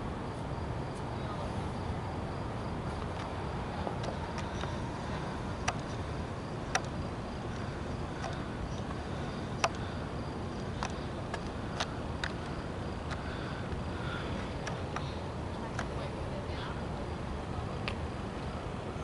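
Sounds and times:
crickets trilling: 0:00.0 - 0:19.0
low background rumble: 0:00.0 - 0:19.0
sharp clicks: 0:05.6 - 0:06.0, 0:06.6 - 0:09.0, 0:09.6 - 0:09.9, 0:10.6 - 0:13.8.

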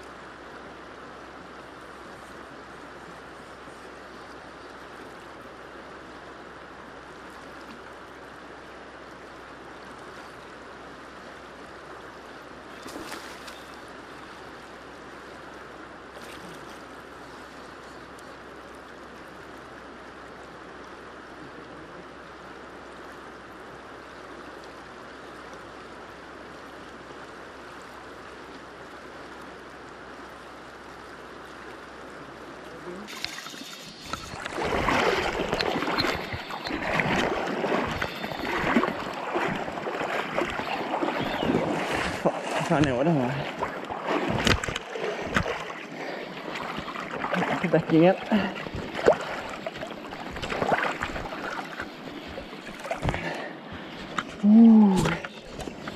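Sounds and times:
river current rushing: 0:00.0 - 0:55.9
knock or splash: 0:44.1 - 0:45.7.

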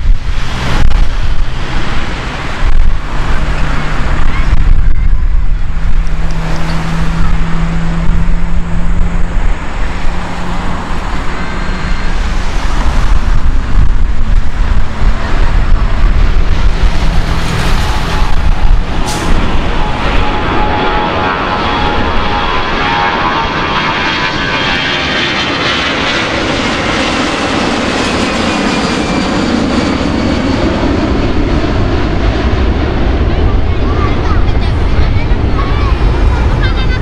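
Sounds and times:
jet engines roaring at takeoff: 0:00.0 - 0:37.0.

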